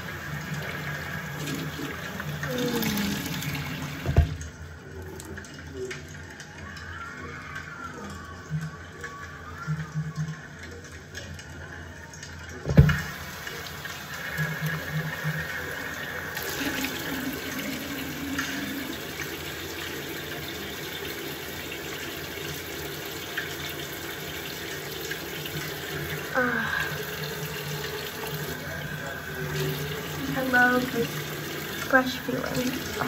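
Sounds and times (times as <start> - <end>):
tap running into sink: 2.7 - 4.5, 12.6 - 15.5.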